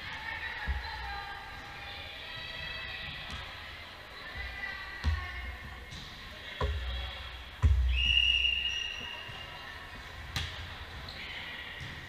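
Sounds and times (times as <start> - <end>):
referee's whistle: 7.9 - 9.5.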